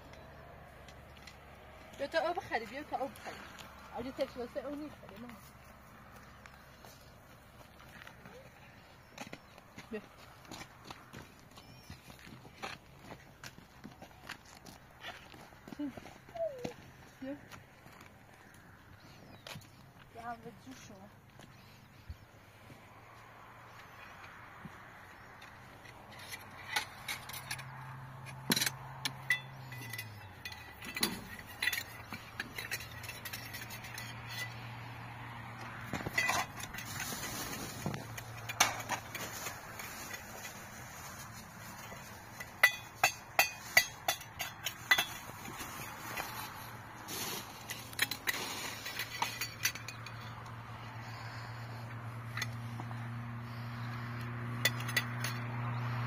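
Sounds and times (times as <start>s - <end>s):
dishes and metal utensils clinking: 28.5s - 34.6s, 42.3s - 46.5s.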